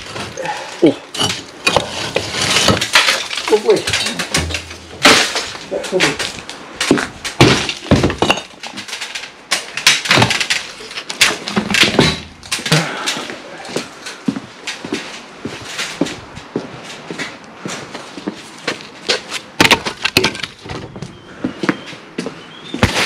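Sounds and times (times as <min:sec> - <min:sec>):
bricks knocking and clinking: 0:00.1 - 0:08.9, 0:09.6 - 0:13.0, 0:19.6 - 0:20.9
footsteps: 0:11.2 - 0:19.5.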